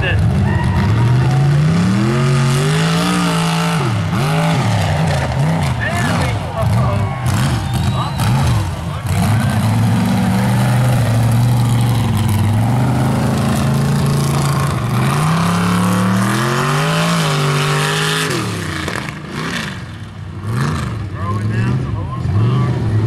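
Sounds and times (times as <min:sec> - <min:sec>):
truck engine revving: 0:00.0 - 0:23.0.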